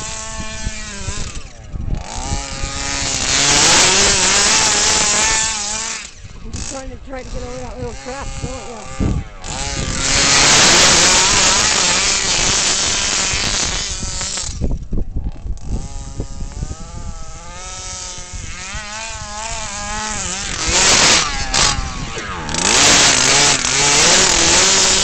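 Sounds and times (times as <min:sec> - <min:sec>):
two-stroke engine revving: 0:00.0 - 0:25.0.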